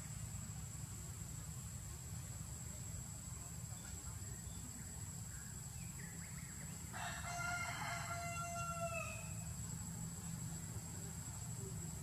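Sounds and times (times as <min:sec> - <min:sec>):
rooster crowing: 0:06.9 - 0:09.4.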